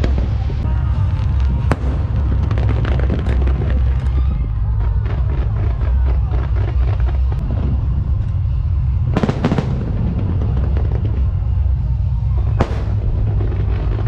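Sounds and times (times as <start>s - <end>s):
fireworks rumble: 0.0s - 14.0s
sharp firework cracks: 0.0s - 14.0s.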